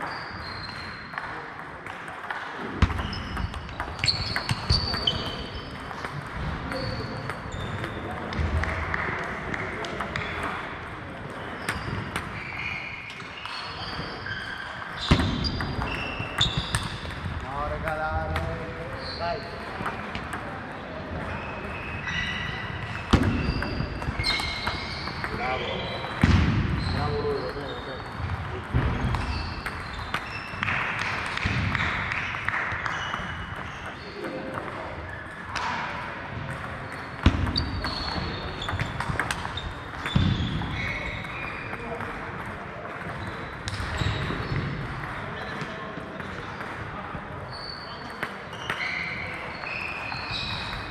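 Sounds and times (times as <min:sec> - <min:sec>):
shoes squeaking on floor: 0:00.0 - 0:01.2, 0:02.7 - 0:06.0, 0:06.6 - 0:08.5, 0:11.4 - 0:19.7, 0:21.2 - 0:30.8, 0:32.8 - 0:35.6, 0:36.8 - 0:42.0, 0:43.0 - 0:46.7, 0:47.3 - 0:50.9
clicks from other tables: 0:28.6 - 0:46.9.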